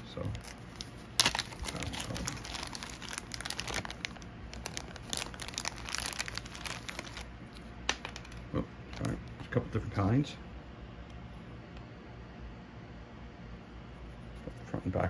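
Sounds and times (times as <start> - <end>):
plastic bag crinkling: 0.0 - 9.2.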